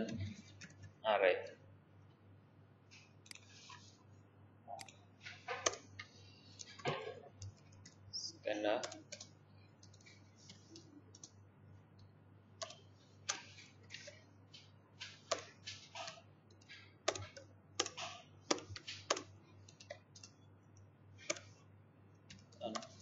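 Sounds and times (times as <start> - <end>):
keyboard typing: 0.0 - 1.0, 4.7 - 21.6, 22.2 - 23.0
steady low hum: 0.0 - 23.0.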